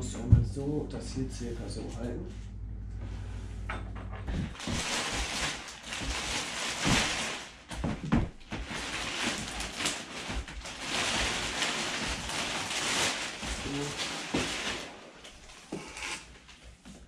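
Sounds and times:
plastic wrap rustling and crinkling: 4.3s - 17.0s.

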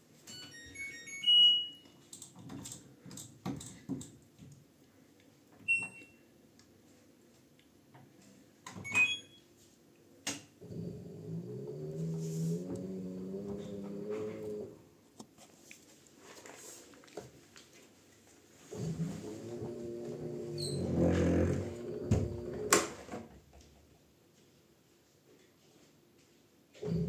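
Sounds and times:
washing machine chime: 0.3s - 2.0s, 8.8s - 9.4s
control panel beeps: 8.9s - 9.4s
washing machine motor humming: 10.6s - 14.9s, 18.7s - 23.0s.

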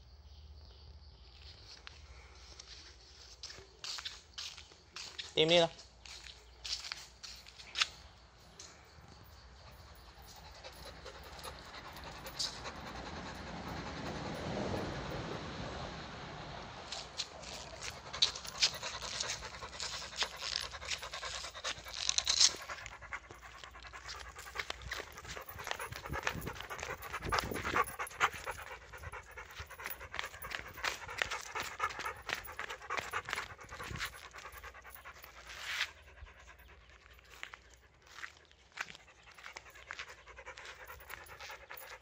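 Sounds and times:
dog panting: 8.5s - 15.4s, 17.0s - 42.0s.

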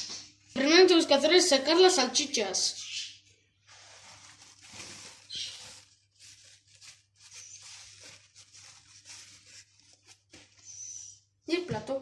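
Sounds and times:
paper towel rustling: 3.6s - 10.8s.

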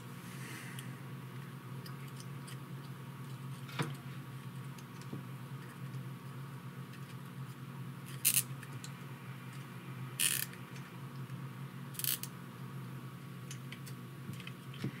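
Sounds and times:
zip ties ratcheting: 8.2s - 8.5s, 10.2s - 10.5s, 12.0s - 12.3s.

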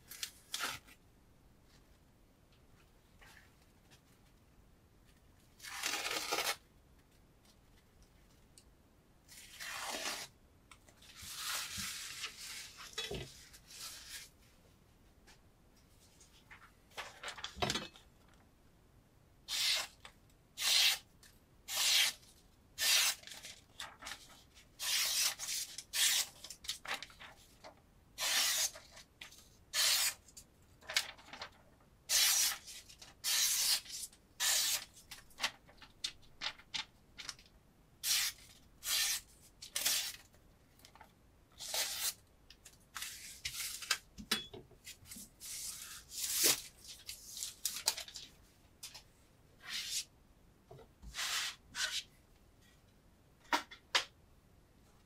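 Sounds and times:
knife slicing paper: 29.8s - 30.2s, 32.1s - 34.9s.

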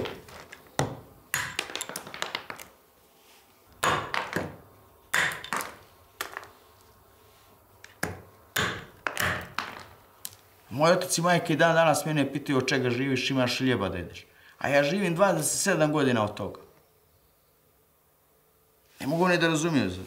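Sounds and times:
hammer striking stone: 0.8s - 2.6s, 3.8s - 6.4s, 8.0s - 9.9s.

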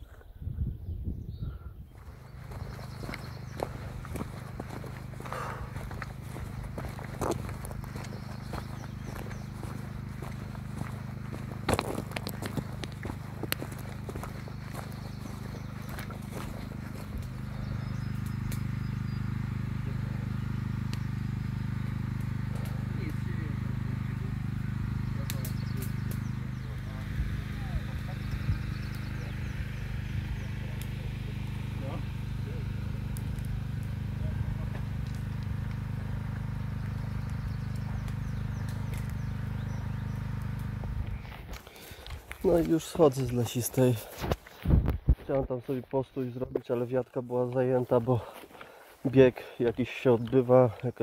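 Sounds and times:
bird chirp: 0.0s - 44.2s
motor humming: 1.5s - 46.0s
sharp clicks: 18.0s - 18.7s, 25.2s - 26.4s.

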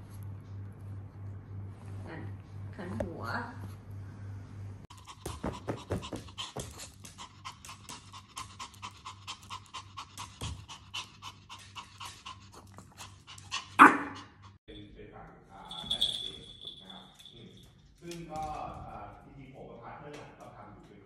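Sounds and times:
dog panting rapidly: 4.9s - 14.6s
dog barking: 13.8s - 14.3s.

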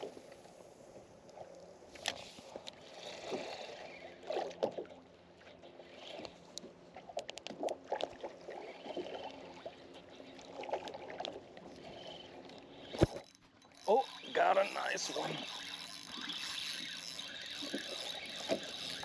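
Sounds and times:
water lapping against boat hull: 0.0s - 19.0s
fishing reel knocks and clicks: 12.8s - 19.0s.

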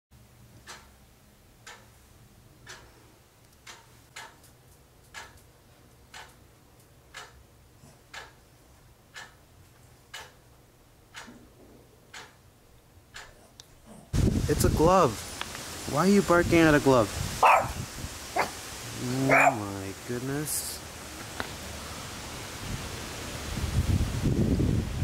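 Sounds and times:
wall clock ticking: 0.3s - 13.5s.

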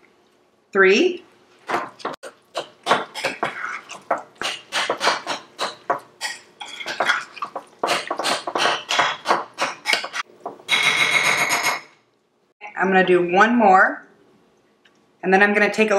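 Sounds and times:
spoon stirring in a bowl: 1.8s - 10.3s.

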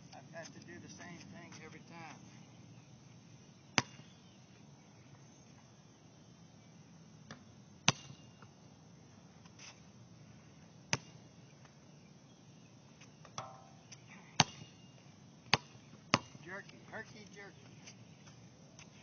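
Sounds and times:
basketball bouncing on court: 15.5s - 16.7s.

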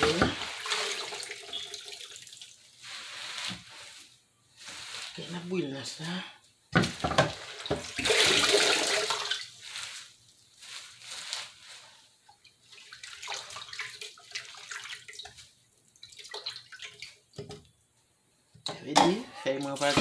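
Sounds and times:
water dripping: 0.0s - 2.7s, 12.2s - 17.8s
loud pouring splash: 0.0s - 3.4s, 7.4s - 9.9s
water splashing in a pot: 0.0s - 3.5s, 6.8s - 10.2s, 12.3s - 17.6s.

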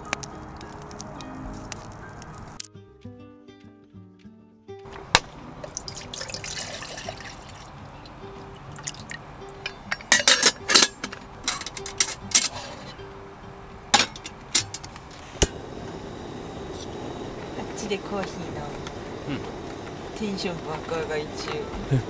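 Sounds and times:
water poured into metal pot: 5.6s - 9.2s
metal pot lid clinking: 9.6s - 13.0s, 13.9s - 14.9s.

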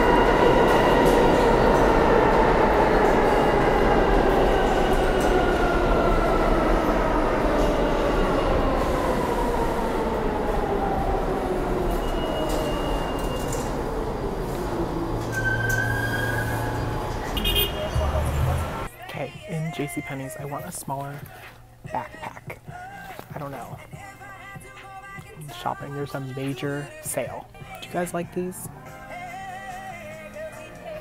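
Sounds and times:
train running rumble: 16.4s - 18.9s.

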